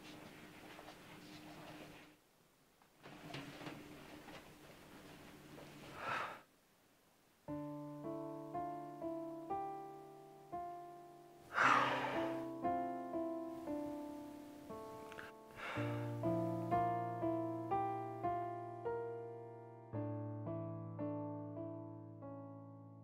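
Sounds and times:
heavy breath out: 0:05.9 - 0:06.5, 0:11.5 - 0:12.4, 0:15.5 - 0:16.1
soft solo piano: 0:07.5 - 0:23.0.

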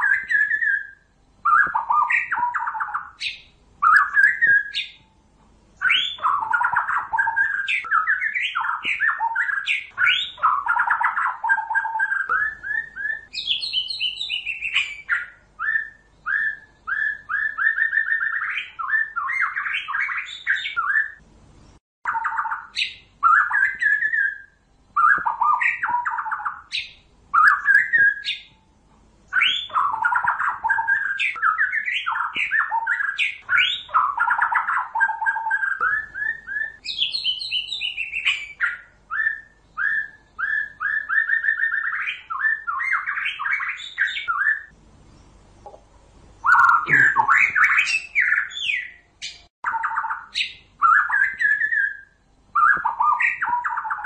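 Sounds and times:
bird singing whistled phrases: 0:00.0 - 0:05.1, 0:05.8 - 0:21.2, 0:22.1 - 0:28.6, 0:29.3 - 0:44.7, 0:46.4 - 0:54.0
quick repeated short bird notes: 0:46.4 - 0:48.5.

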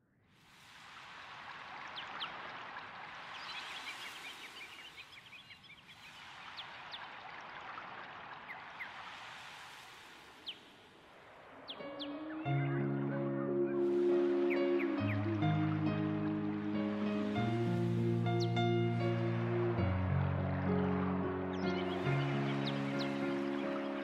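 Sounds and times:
fountain water trickling: 0:00.6 - 0:12.3
water drips and plinks: 0:00.6 - 0:12.6.

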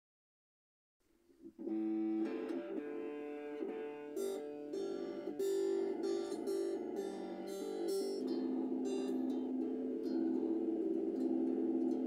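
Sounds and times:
electric guitar picked notes: 0:01.6 - 0:12.0.

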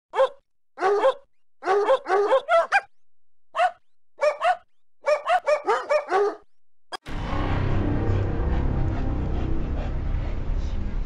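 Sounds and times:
dog barking: 0:00.1 - 0:03.0, 0:03.6 - 0:06.5.

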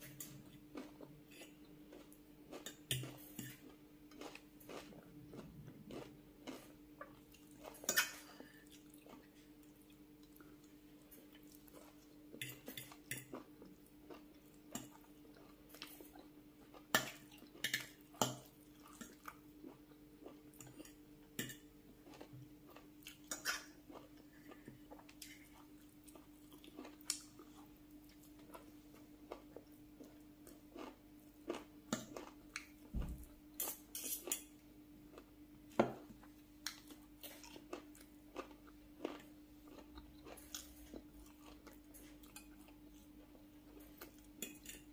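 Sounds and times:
faint steady hum: 0:00.0 - 0:44.9
soft chewing: 0:00.0 - 0:44.9
cutlery scraping a glass bowl: 0:33.6 - 0:34.4.

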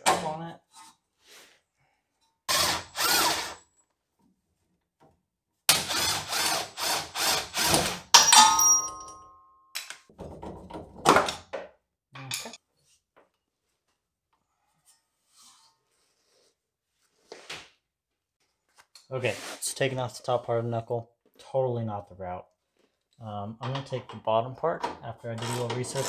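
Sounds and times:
power tool bursts: 0:02.5 - 0:03.6
metal clank ringing: 0:08.2 - 0:09.7.

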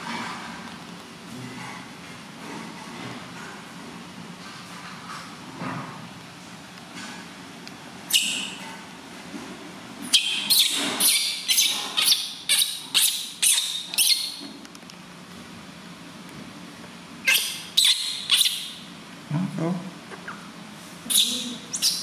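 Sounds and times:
baby monkey squealing: 0:08.1 - 0:08.6, 0:10.1 - 0:14.4, 0:17.2 - 0:18.8, 0:21.1 - 0:22.0.

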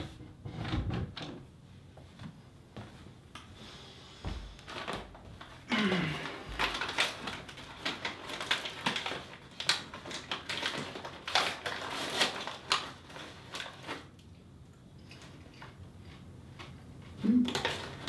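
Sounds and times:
popcorn bag crinkling: 0:04.7 - 0:14.3, 0:15.0 - 0:18.0.

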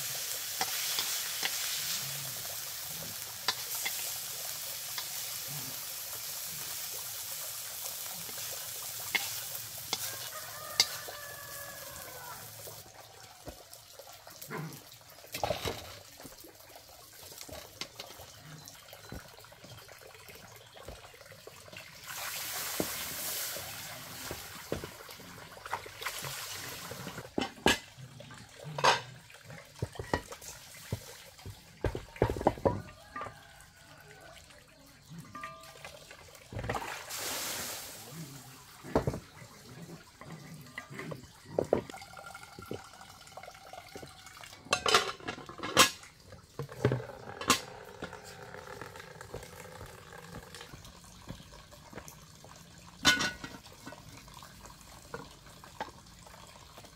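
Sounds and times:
metal pots clanking: 0:00.0 - 0:12.2, 0:15.3 - 0:16.4, 0:22.6 - 0:26.3, 0:27.0 - 0:33.4, 0:35.2 - 0:37.2, 0:38.8 - 0:52.1, 0:52.9 - 0:54.4
water splashing and pouring: 0:00.0 - 0:56.9.

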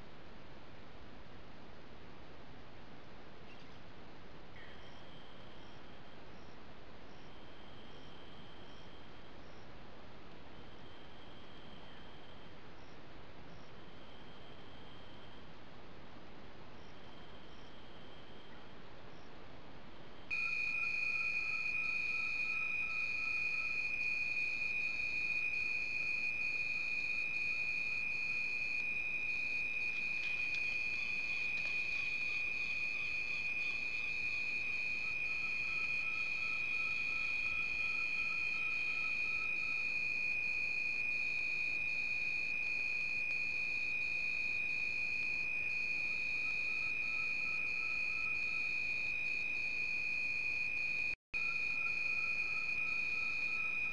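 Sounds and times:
high-pitched insect tone: 0:20.3 - 0:53.9
pulsing insect notes: 0:20.3 - 0:53.9.

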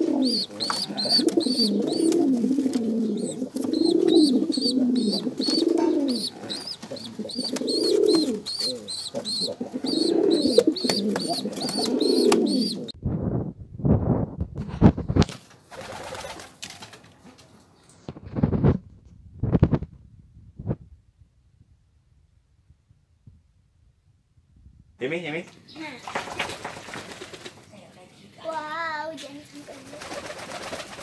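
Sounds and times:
pigeon cooing: 0:00.0 - 0:13.0
fast high chirping: 0:00.2 - 0:02.4, 0:03.0 - 0:12.9.

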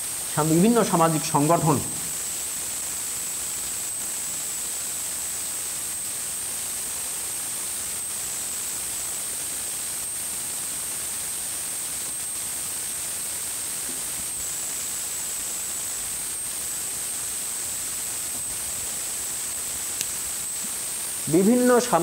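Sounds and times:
high-pitched whine: 0:00.0 - 0:02.6, 0:14.3 - 0:22.0
steady hiss: 0:00.0 - 0:22.0.

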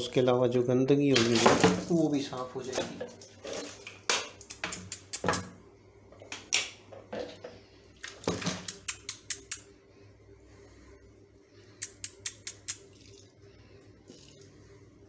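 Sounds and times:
water splashing in a plastic basin: 0:08.0 - 0:08.7.

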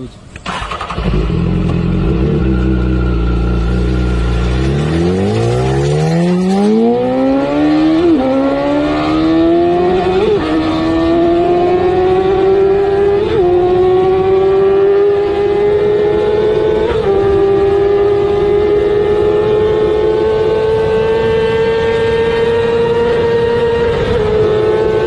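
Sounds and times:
motorcycle engine accelerating: 0:00.4 - 0:25.0.

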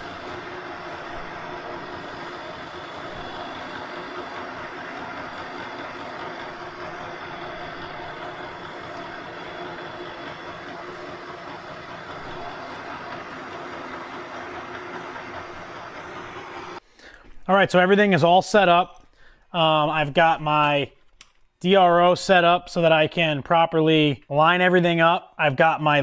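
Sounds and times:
metal lathe humming: 0:00.0 - 0:16.8.

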